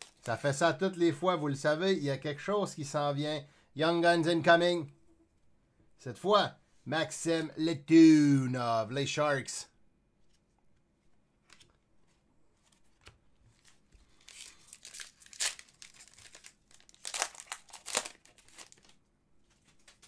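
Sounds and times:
plastic packaging crinkling: 13.6 - 20.0.

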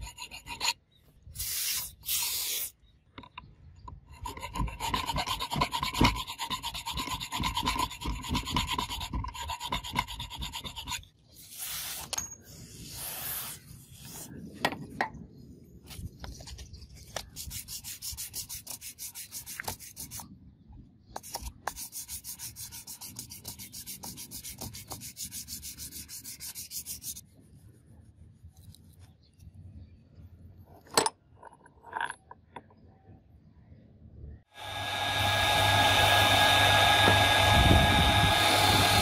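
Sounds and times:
hand file scraping steel: 0.0 - 0.8, 3.9 - 12.1, 17.2 - 20.2, 21.2 - 27.2.

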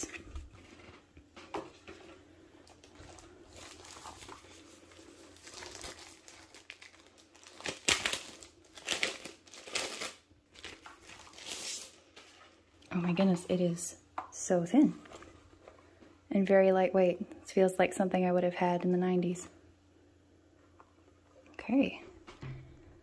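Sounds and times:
plastic sleeve crinkling: 0.0 - 13.4.

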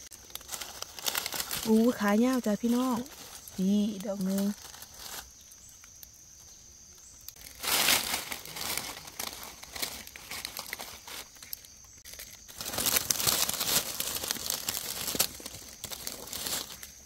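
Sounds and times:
dry leaves crackling and rustling: 0.0 - 17.0.

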